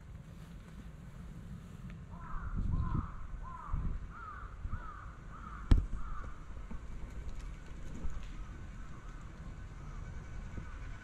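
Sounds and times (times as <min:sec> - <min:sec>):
crow cawing: 0:02.1 - 0:06.5.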